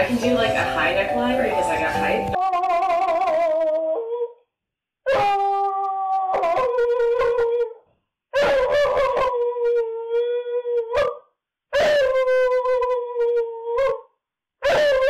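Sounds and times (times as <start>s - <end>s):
dog howling: 2.4s - 4.4s, 5.1s - 7.8s, 8.4s - 11.2s, 11.8s - 14.0s, 14.6s - 15.0s.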